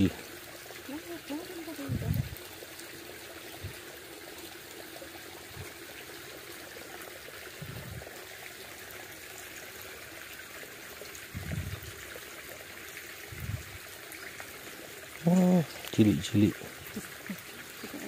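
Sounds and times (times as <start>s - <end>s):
stream trickling over stones: 0.0s - 18.0s
dull low thumps: 1.9s - 2.4s, 7.6s - 8.0s, 11.3s - 11.9s.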